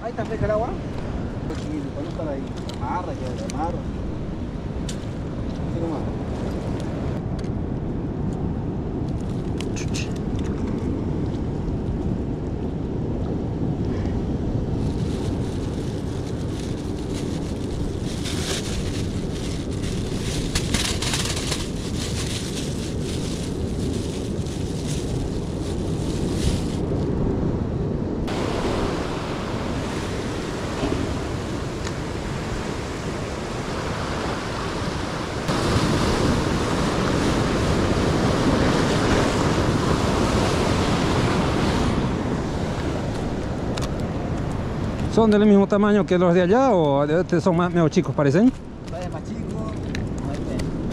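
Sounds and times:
wind buffeting microphone: 0:00.0 - 0:50.9
rustling: 0:14.8 - 0:27.0
surf waves breaking on rocks: 0:28.3 - 0:46.4.

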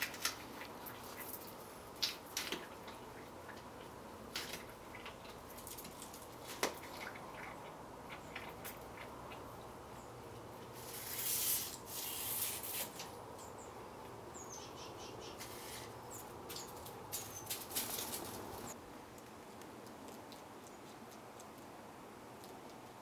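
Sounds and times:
small birds chirping: 0:12.0 - 0:18.8
rustling: 0:15.4 - 0:21.7.

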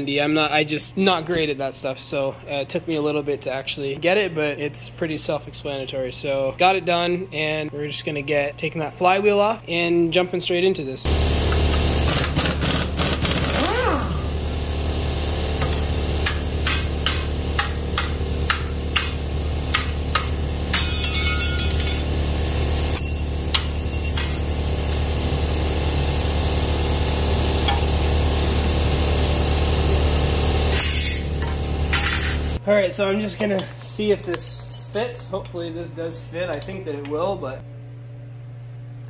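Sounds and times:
air compressor humming: 0:11.1 - 0:32.6
air impact wrench rattling: 0:11.5 - 0:14.0, 0:15.6 - 0:22.2, 0:22.9 - 0:24.6
metal clinks of tools: 0:20.7 - 0:22.1, 0:22.9 - 0:24.5, 0:34.2 - 0:35.4, 0:36.5 - 0:37.2.

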